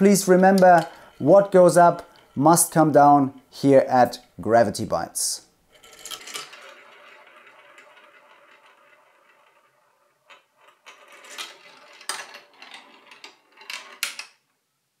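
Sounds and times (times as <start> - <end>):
rattle: 0.0 - 2.4, 5.7 - 14.4
marbles rolling and clicking: 0.0 - 3.0, 5.7 - 14.4.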